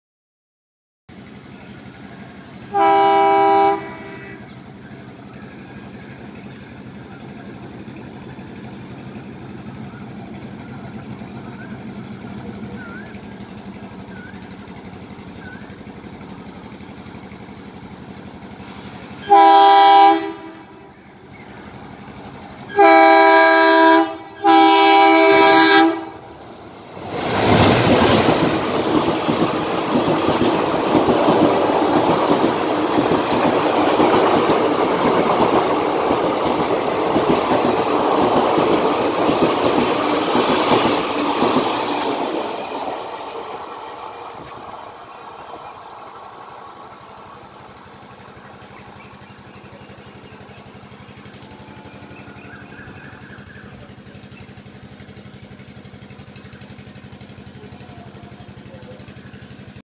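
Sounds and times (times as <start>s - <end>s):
train coaches clattering over rails: 1.2s - 59.8s
train horn blasts: 2.7s - 4.6s, 19.2s - 20.9s, 22.7s - 26.3s, 51.4s - 53.5s
faint bird chirps: 9.7s - 16.0s.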